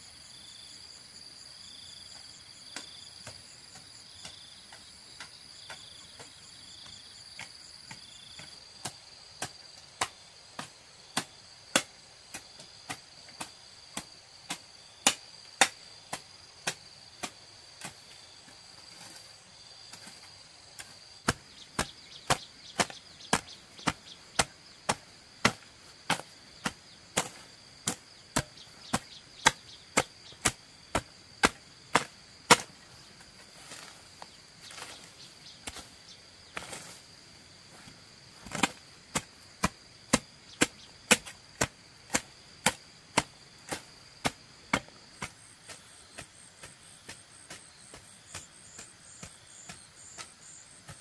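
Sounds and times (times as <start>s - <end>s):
hand hoe chopping into soil: 2.7s - 6.4s, 7.3s - 51.0s
high insect buzz: 12.4s - 51.0s.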